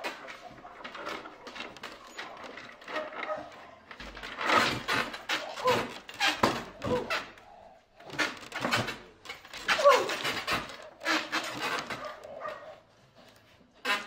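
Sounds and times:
dog barking: 2.9 - 3.8, 11.9 - 12.8.

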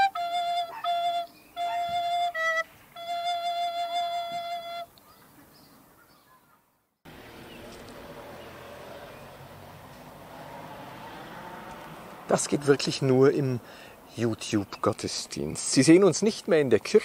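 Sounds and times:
recorder playing notes: 0.0 - 4.9
faint outdoor background hiss: 0.0 - 17.0.

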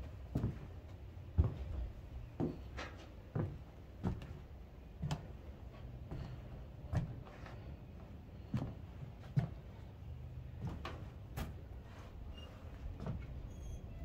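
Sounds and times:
low steady background noise: 0.0 - 14.0.

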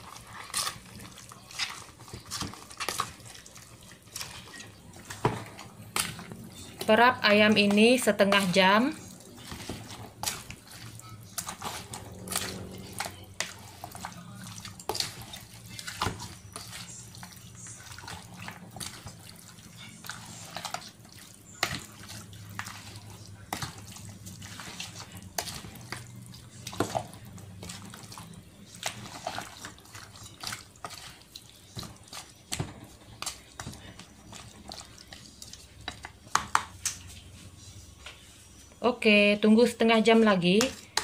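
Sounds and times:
wet squelching of meat: 8.8 - 36.1
plastic spatula knocking basin: 36.3 - 36.7.

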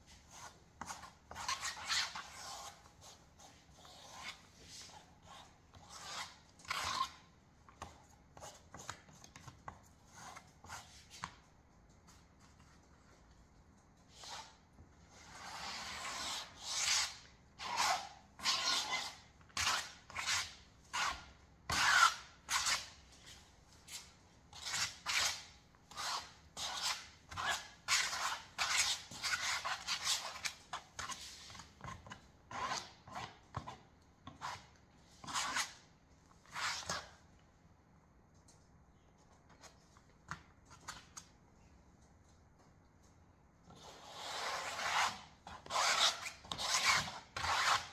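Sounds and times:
comb scraping wet paint on canvas: 0.1 - 11.4.

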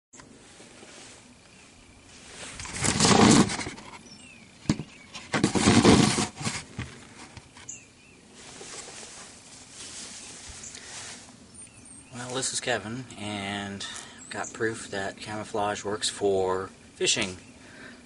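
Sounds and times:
rustling and scraping on microphone: 0.2 - 12.5.

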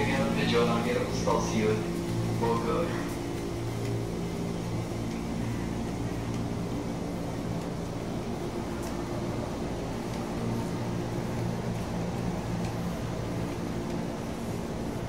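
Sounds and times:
electric train humming: 0.0 - 15.0.

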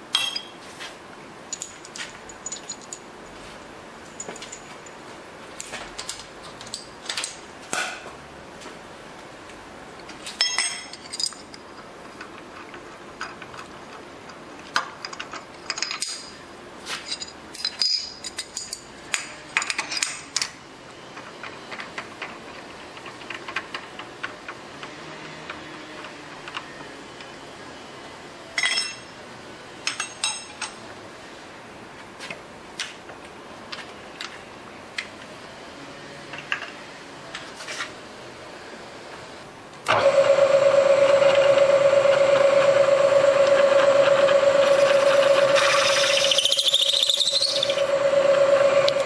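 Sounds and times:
metal tools clinking: 0.1 - 0.6, 1.5 - 5.0, 10.3 - 11.8, 15.0 - 16.3, 17.0 - 18.9, 28.6 - 29.0.

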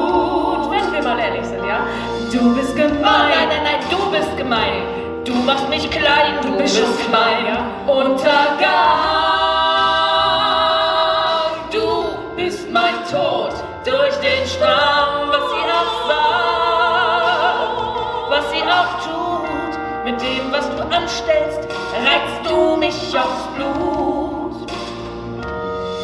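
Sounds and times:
two women singing: 0.0 - 24.9.

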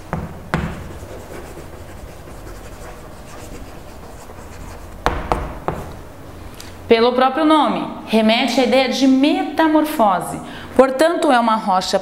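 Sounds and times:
chalk tapping on board: 0.1 - 5.9
chalk writing on blackboard: 0.6 - 5.9.

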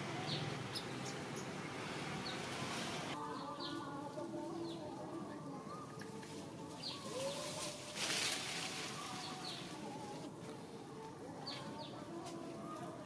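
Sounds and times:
birds chirping: 0.0 - 7.6, 8.6 - 10.3.

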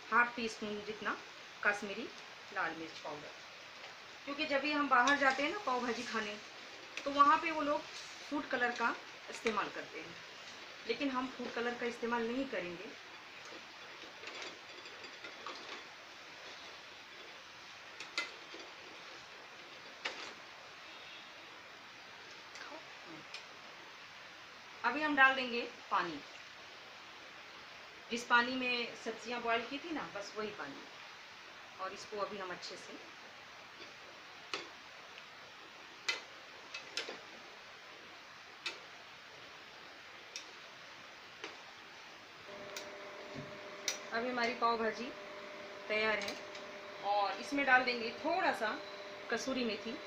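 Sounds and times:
spoon stirring mash in metal pan: 5.0 - 6.2, 17.9 - 20.5, 36.0 - 37.3.

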